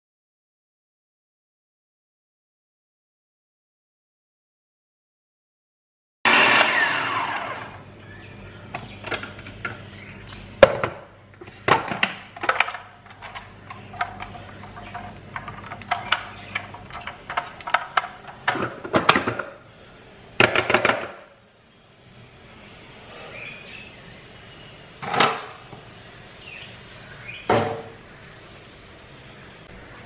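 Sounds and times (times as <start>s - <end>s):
food processor motor winding down: 6.3s - 7.9s.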